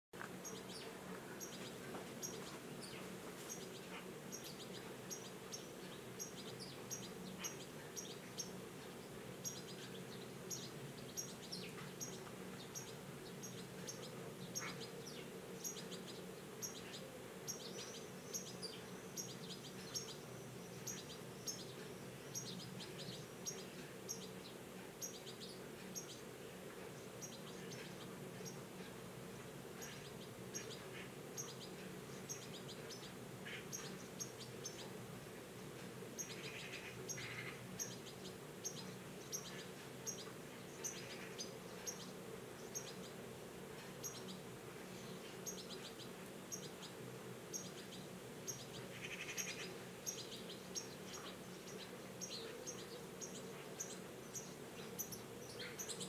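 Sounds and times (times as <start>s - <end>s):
faint low hum: 0.2s - 56.0s
young bird chirping: 9.4s - 24.3s.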